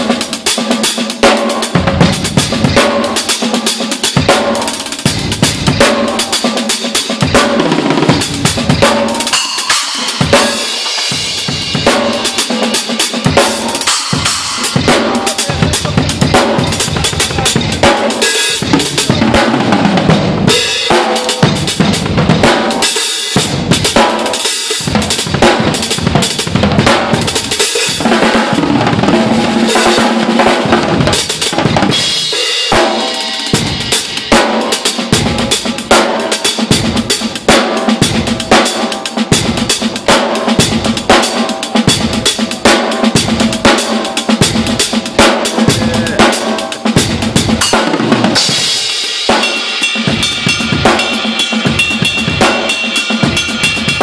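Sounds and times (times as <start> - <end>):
drum kit playing solo: 0.0 - 54.0
cymbal crashes: 29.3 - 54.0.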